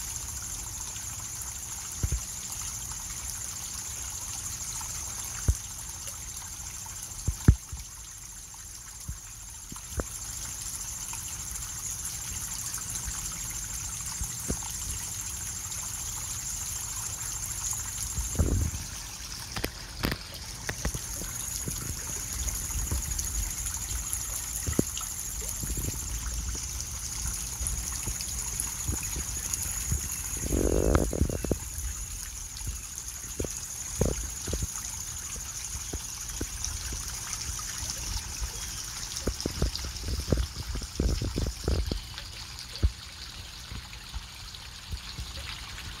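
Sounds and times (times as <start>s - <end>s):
fountain water splashing into pond: 0.0s - 46.0s.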